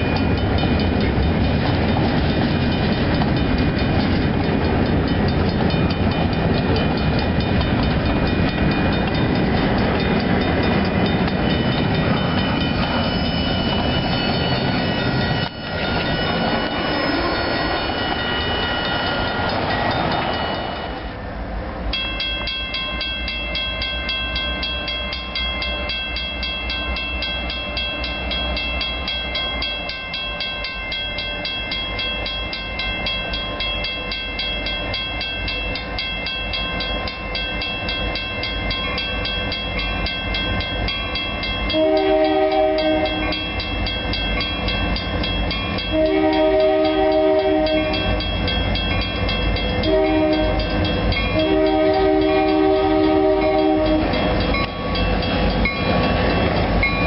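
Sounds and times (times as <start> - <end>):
crossing warning bell ringing: 0.0 - 21.2, 21.9 - 57.0
diesel locomotive rumble: 0.0 - 30.2, 32.3 - 57.0
locomotive horn blasts: 41.7 - 43.4, 45.9 - 48.1, 49.8 - 54.2.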